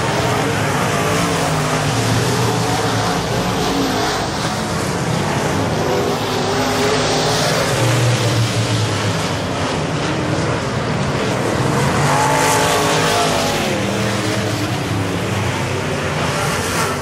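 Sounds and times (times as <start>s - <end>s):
race car engine passing: 0.0s - 17.0s.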